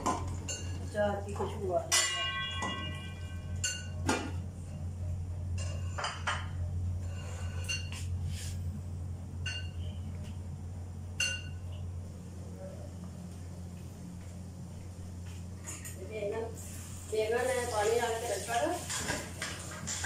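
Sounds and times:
low hum: 0.0 - 17.4
metal kitchenware clinks: 1.9 - 4.0.

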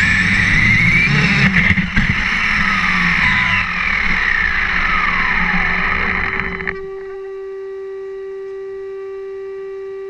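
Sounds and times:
tyre and road rumble: 0.0 - 7.0
toy truck motor whine: 0.0 - 7.5.

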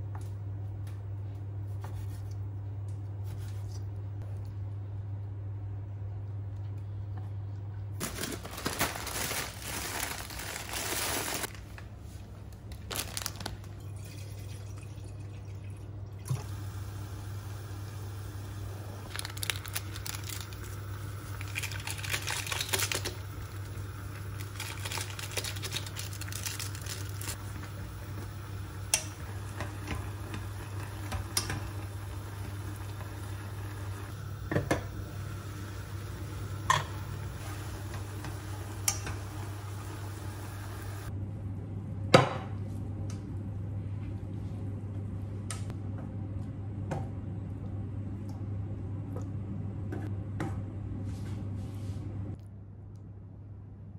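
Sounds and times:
noodles boiling in a saucepan: 8.0 - 11.5, 13.0 - 41.1
packets crinkling: 8.0 - 11.8, 12.7 - 13.8, 19.0 - 23.7, 24.3 - 27.4.

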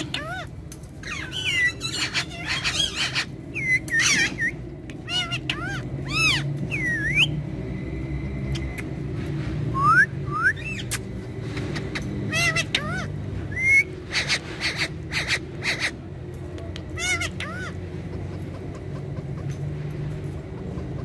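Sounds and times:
parakeets whistling and chirping: 0.0 - 9.1, 9.7 - 16.0, 16.9 - 17.8.

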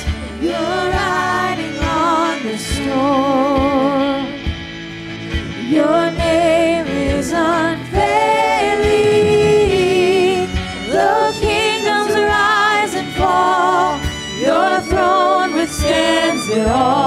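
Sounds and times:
worship band playing: 0.0 - 17.0
woman singing with vibrato: 5.6 - 17.0.

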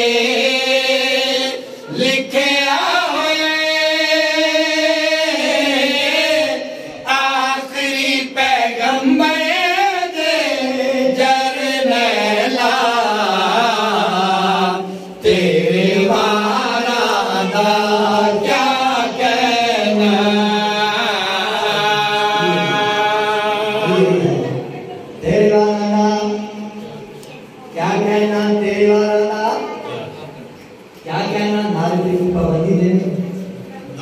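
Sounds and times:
men chanting into microphone: 0.0 - 26.8.

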